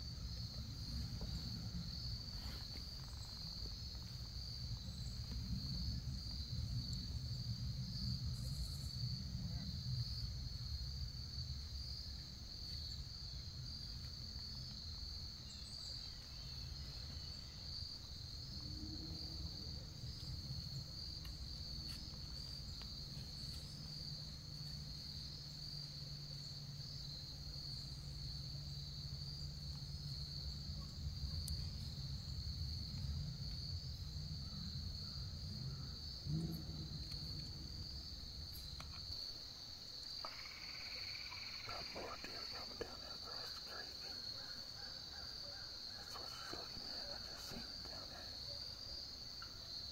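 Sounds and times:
crickets trilling: 0:00.0 - 0:49.9
faint low rumble: 0:31.1 - 0:39.4.

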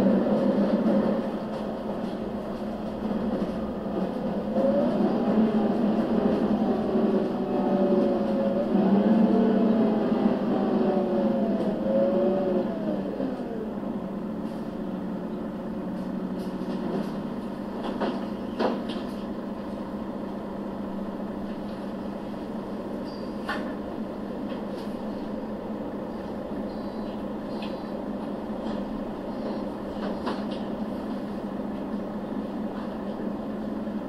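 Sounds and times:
bus diesel engine running: 0:00.0 - 0:34.0.

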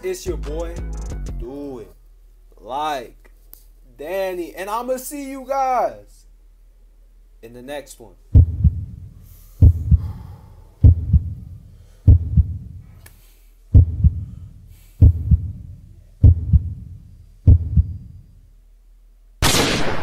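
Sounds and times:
heartbeat thumps: 0:08.3 - 0:12.8, 0:13.7 - 0:18.2
loud sudden blast: 0:19.4 - 0:20.0.

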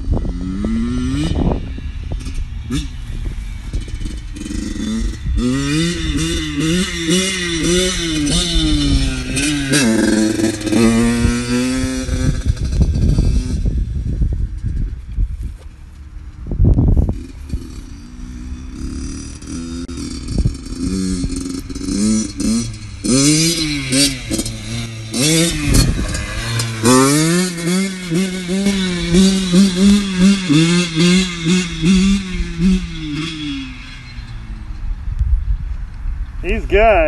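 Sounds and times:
motorcycle engine revving: 0:00.0 - 0:35.6.

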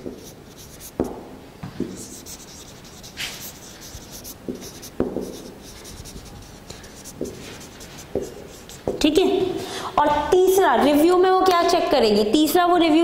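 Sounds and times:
marker squeaking on whiteboard: 0:00.0 - 0:01.2, 0:01.8 - 0:09.1
marker tapping on board: 0:00.0 - 0:03.0, 0:03.8 - 0:09.1.

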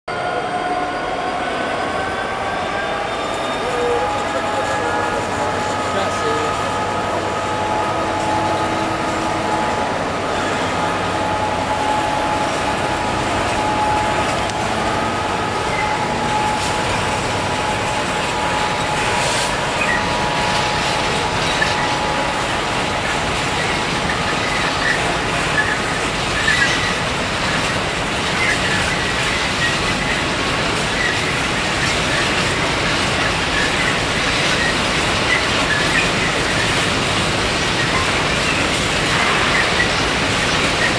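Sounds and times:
high wheel squeals: 0:00.1 - 0:22.4, 0:23.6 - 0:27.8
diesel locomotive engine: 0:00.1 - 0:40.9
freight train rumbling: 0:00.1 - 0:40.9.

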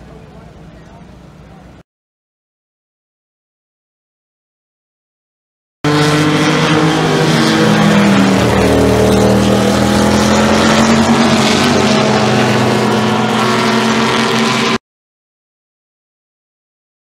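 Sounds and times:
race car engine running hard: 0:05.9 - 0:14.8.

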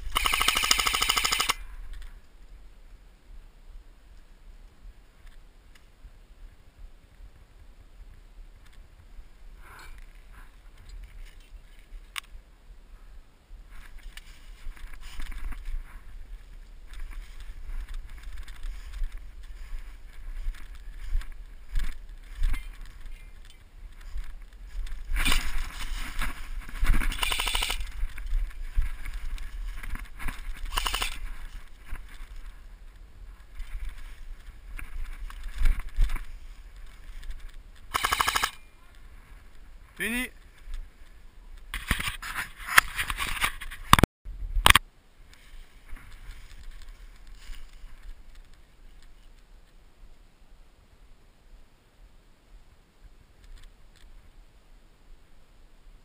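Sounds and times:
footsteps through dry leaves: 0:24.0 - 0:32.5
camera handling noise: 0:24.8 - 0:28.3, 0:29.3 - 0:31.3, 0:37.2 - 0:38.6, 0:44.6 - 0:44.8.

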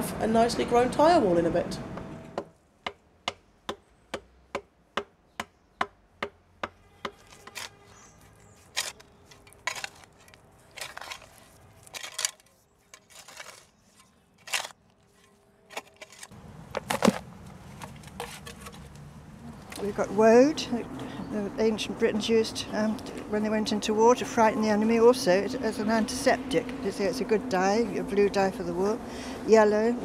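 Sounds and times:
digging scrapes: 0:07.0 - 0:19.0
soil tipped from wheelbarrow: 0:08.7 - 0:14.7.

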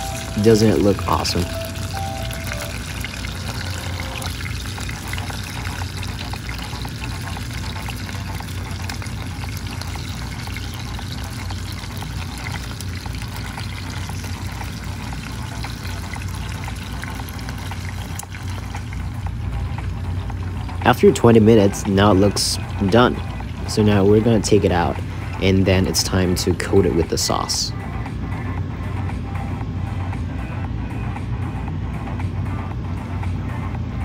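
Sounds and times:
chicken wings sizzling in oil: 0:00.0 - 0:26.9
steady low hum: 0:00.0 - 0:34.0.

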